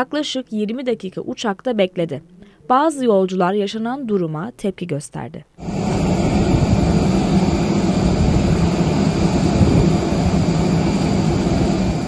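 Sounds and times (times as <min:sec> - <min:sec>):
jet airliner hum and rush: 0:05.6 - 0:12.0.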